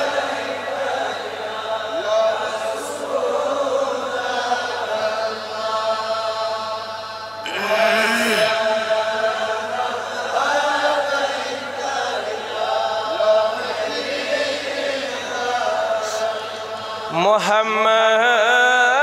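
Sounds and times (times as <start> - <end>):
devotional chanting: 0.0 - 19.0
single voice singing: 7.4 - 19.0.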